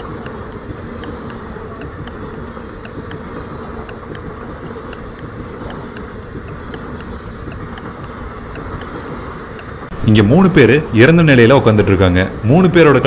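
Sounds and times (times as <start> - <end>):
clock ticking: 0.0 - 11.5
moving train rumble: 0.0 - 13.0.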